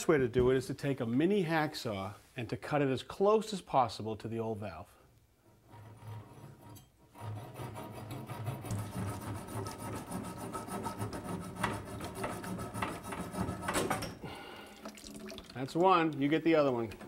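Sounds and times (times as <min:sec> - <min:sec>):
hacksaw cutting copper pipe: 0:05.5 - 0:14.2.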